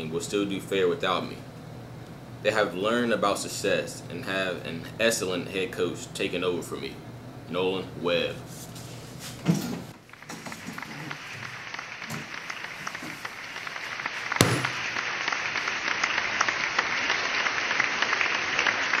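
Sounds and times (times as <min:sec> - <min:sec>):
crowd applauding: 0:10.0 - 0:19.0.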